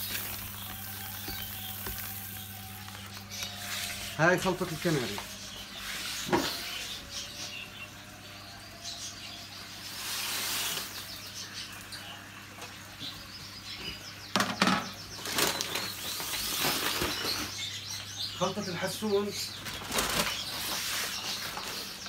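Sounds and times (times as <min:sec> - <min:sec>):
paper sacks rustling: 0:00.0 - 0:06.2, 0:15.1 - 0:17.6, 0:18.5 - 0:22.0
small birds chirping: 0:00.0 - 0:22.0.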